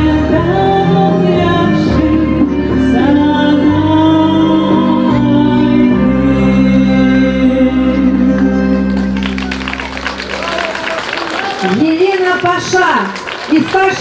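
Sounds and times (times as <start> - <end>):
woman singing into microphone: 0.0 - 8.8
instrumental accompaniment: 0.0 - 12.1.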